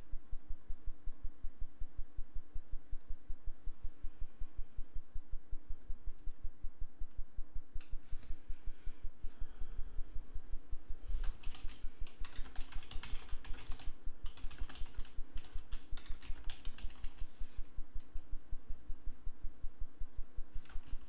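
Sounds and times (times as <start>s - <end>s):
keyboard typing: 11.2s - 17.4s, 20.6s - 21.0s.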